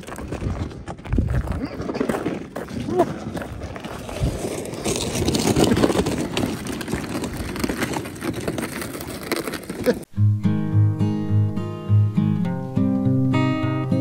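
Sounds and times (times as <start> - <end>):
boots crunching on ice: 0.0 - 10.1
sled scraping across ice: 0.0 - 10.1.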